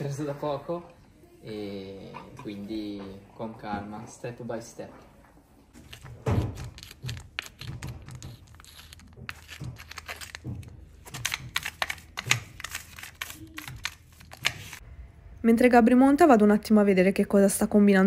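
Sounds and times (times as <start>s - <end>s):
brush scratching horse hoof: 6.7s - 10.4s.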